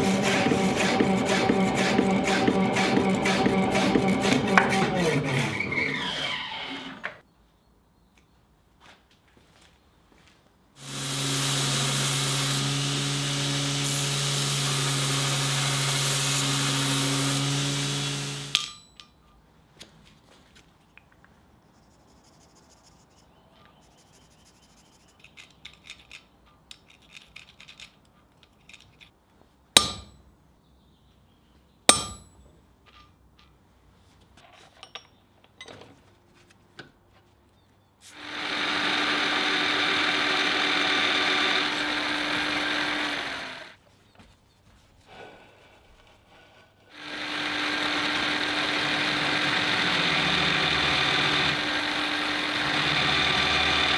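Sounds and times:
workshop machine motor running: 0.0 - 5.9, 38.1 - 43.8, 46.9 - 53.9
drill press running: 0.0 - 7.1, 38.2 - 43.8, 47.0 - 53.9
ringing metal strikes: 29.8 - 30.3, 31.9 - 32.6.

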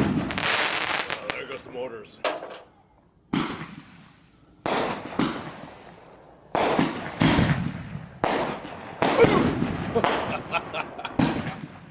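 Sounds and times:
fireworks bangs: 0.0 - 1.6, 3.3 - 11.9.

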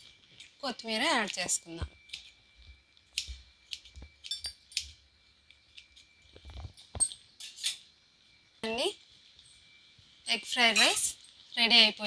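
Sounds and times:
spoon clinking against metal pan: 10.7 - 11.1.

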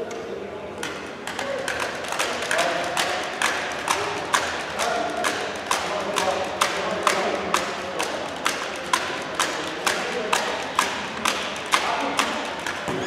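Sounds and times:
sharp knocks in a hall: 0.8 - 13.0.

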